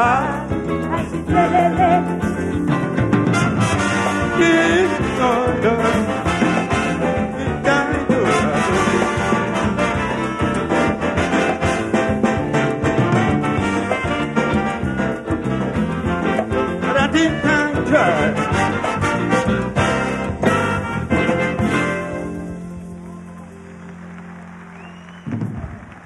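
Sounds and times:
calypso band playing: 0.0 - 23.7.

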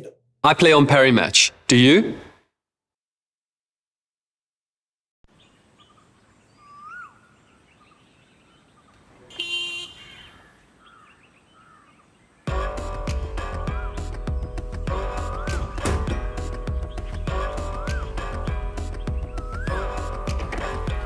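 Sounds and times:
birds chirping and calling: 5.3 - 9.3, 9.9 - 12.5, 13.5 - 21.0
background music: 12.5 - 21.0.

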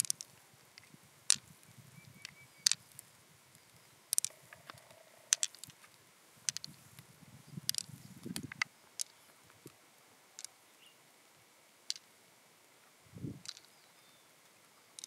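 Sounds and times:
pearls clicking together: 0.0 - 6.8, 7.6 - 9.7, 10.4 - 10.6, 11.8 - 12.1, 13.4 - 13.8.

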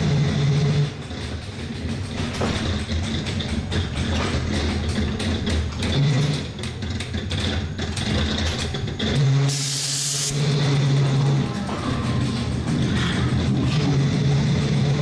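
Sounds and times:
ride car humming: 0.0 - 15.0
loud air hiss: 9.5 - 10.4.

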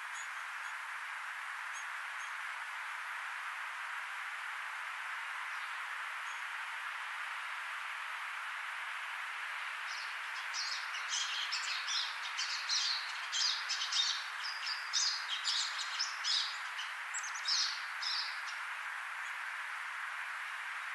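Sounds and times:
background hiss: 0.0 - 20.9
finch singing: 9.9 - 18.6.

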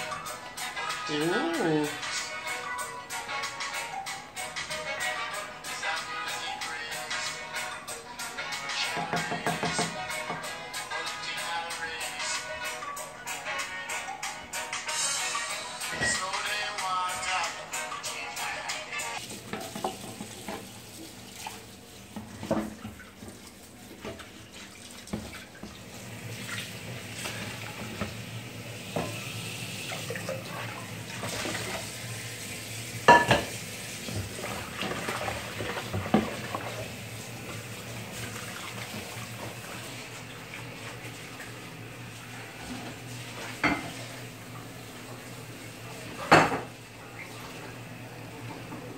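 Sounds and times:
liquid hissing and bubbling: 19.2 - 46.2
clinks of bowls and utensils: 33.1 - 33.6, 43.6 - 44.0, 46.2 - 46.7.

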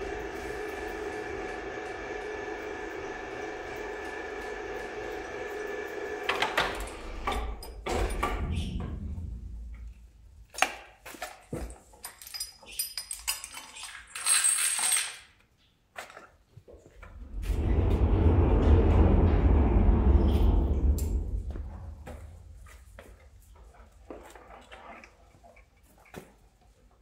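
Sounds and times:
chain hoist motor whining: 0.0 - 7.6
chain clinking and rattling: 11.8 - 15.4.

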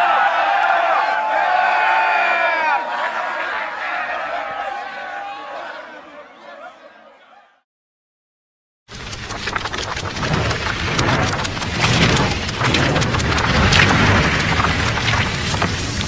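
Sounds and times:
heavy rain: 8.9 - 16.0
low thunder rumble: 9.0 - 16.0.

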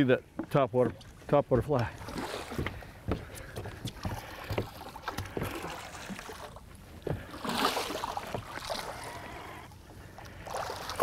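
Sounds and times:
fish thrashing and splashing: 2.0 - 2.9, 4.0 - 9.6.

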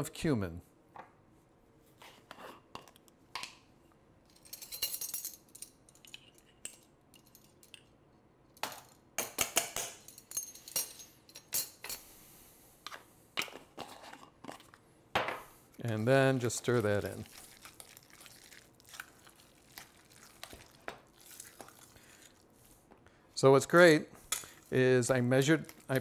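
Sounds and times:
metal spoons clinking on glass jar: 4.3 - 7.9
spoon scraping: 15.7 - 22.4.

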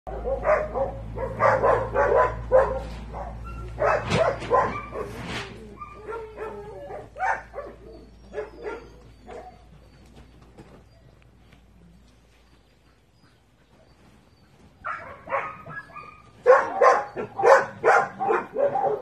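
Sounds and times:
dogs barking: 0.1 - 9.8, 14.8 - 19.0.

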